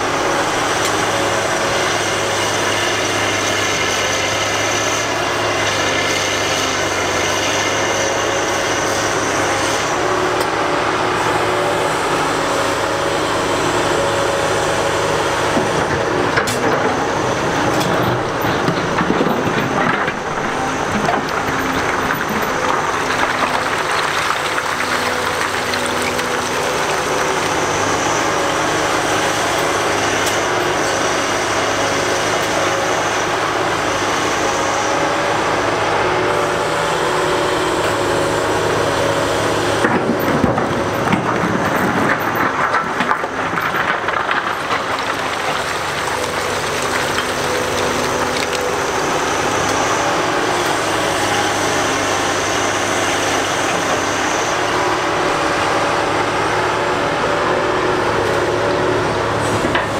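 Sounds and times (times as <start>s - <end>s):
excavator diesel engine running: 0.0s - 59.9s
rock clattering and scraping: 15.8s - 28.2s, 39.9s - 49.1s.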